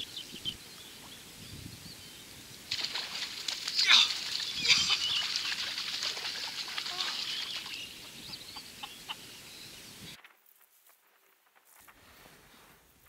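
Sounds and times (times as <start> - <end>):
bird chirps: 4.3 - 5.8, 6.8 - 10.2.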